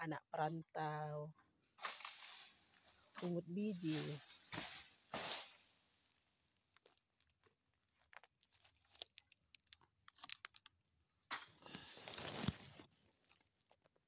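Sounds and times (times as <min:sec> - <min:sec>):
dry leaves rustling and crackling: 0:01.8 - 0:05.8.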